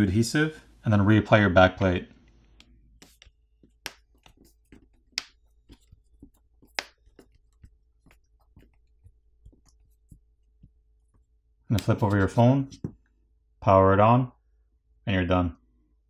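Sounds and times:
fingers tapping phone plastic: 2.6s - 10.8s.

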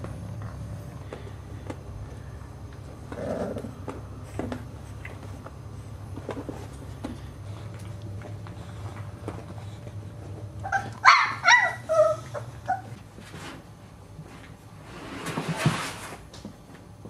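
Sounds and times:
puppies yipping and whining: 10.6s - 13.2s
puppy scrabbling on plastic slide: 14.9s - 16.4s.

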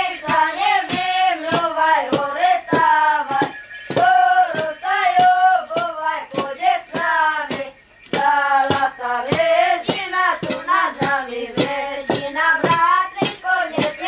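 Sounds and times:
children singing a carol: 0.0s - 14.0s
sharp knocks keeping time: 0.0s - 14.0s.

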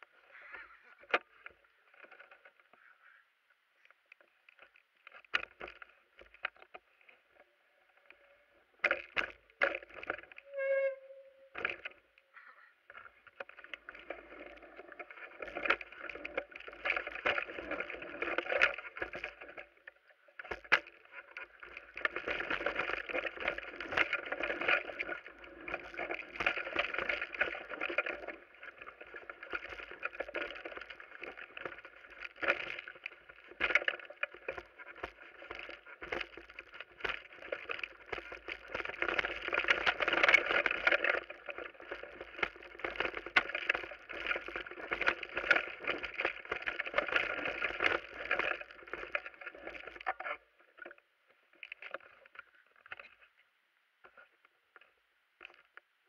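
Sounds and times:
tyres on dirt and stones: 0.0s - 56.0s
bike chain and frame rattling: 4.5s - 50.9s.

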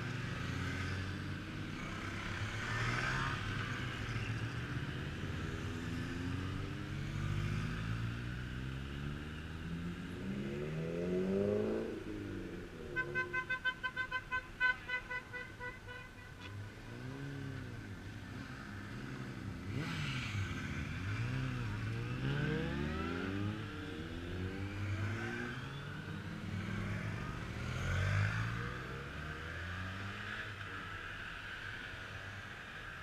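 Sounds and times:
motorcycles riding past: 0.0s - 13.8s, 16.3s - 33.0s
horn beeping rapidly: 13.0s - 16.4s.

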